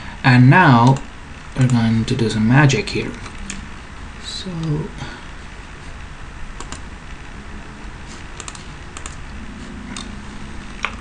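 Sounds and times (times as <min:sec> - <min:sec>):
steady background hiss: 0:00.0 - 0:11.0
computer keyboard clicks: 0:06.6 - 0:06.8, 0:08.4 - 0:09.2.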